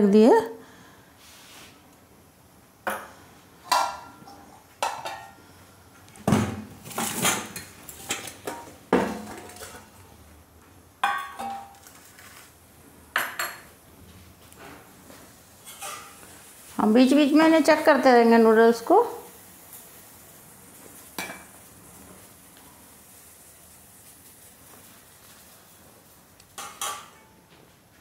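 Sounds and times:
steel kitchenware clinking on stone: 0:11.0 - 0:12.0, 0:15.6 - 0:16.2, 0:26.6 - 0:27.4.

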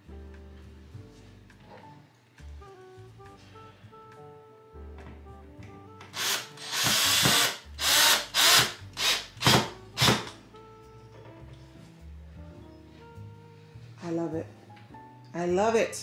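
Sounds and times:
quiet background music: 0:00.0 - 0:16.0
power drill running: 0:06.1 - 0:10.3.

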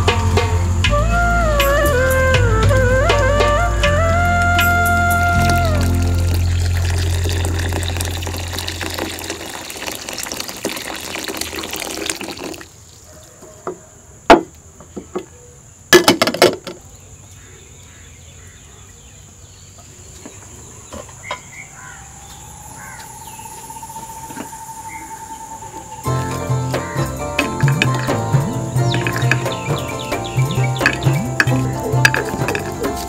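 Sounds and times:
insects chirring: 0:00.0 - 0:33.0
water pouring into glass bowl: 0:05.4 - 0:12.7.

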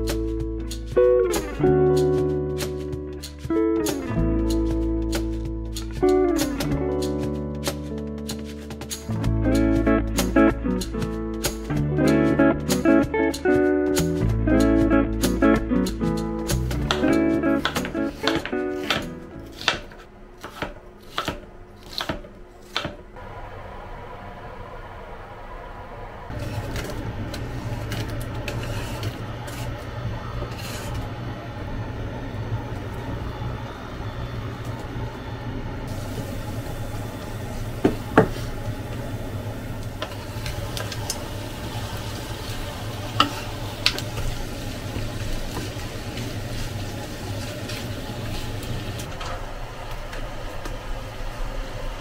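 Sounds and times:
steady low hum: 0:00.0 - 0:52.0
onions sizzling in oil: 0:35.9 - 0:49.1.

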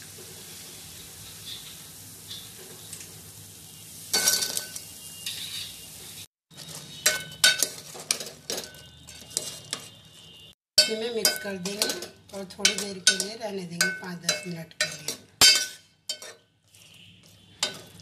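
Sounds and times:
metal spoon clinking against pot: 0:06.6 - 0:10.0, 0:10.8 - 0:16.5, 0:17.6 - 0:18.0.

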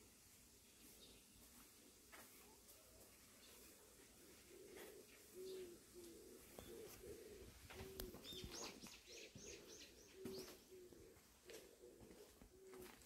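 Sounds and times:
bird cooing: 0:03.6 - 0:13.0
high falling bird chirps: 0:08.0 - 0:10.8.

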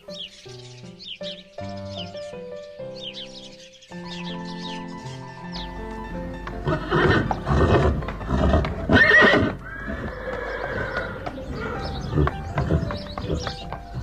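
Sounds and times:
horse neighing: 0:06.6 - 0:13.6.

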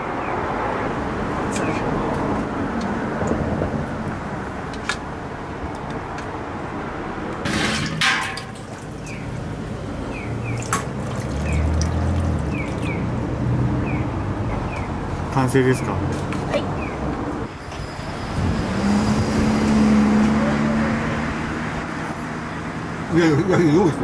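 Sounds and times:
liquid pouring and splashing: 0:07.5 - 0:09.1, 0:10.5 - 0:13.0.

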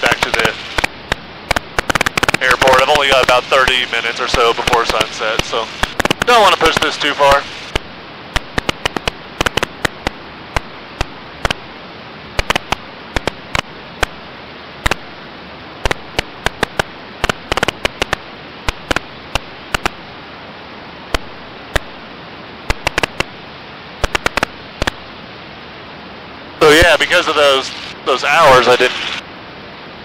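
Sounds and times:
intercom audio hiss: 0:00.0 - 0:07.8, 0:26.6 - 0:29.2
crackling static pops: 0:00.0 - 0:14.2, 0:14.8 - 0:15.2, 0:15.8 - 0:20.1, 0:21.0 - 0:25.2, 0:26.6 - 0:29.2.

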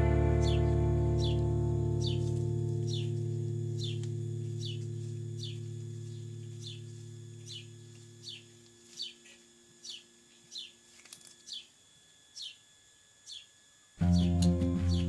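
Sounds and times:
low sustained tones: 0:00.0 - 0:10.5, 0:14.0 - 0:15.0
bird chirping: 0:00.0 - 0:15.0.

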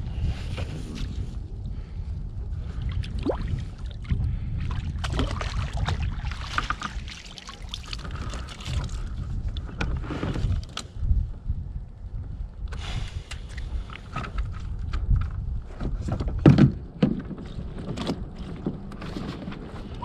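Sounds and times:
wind on microphone: 0:00.0 - 0:20.0
water splashing: 0:04.8 - 0:09.1.

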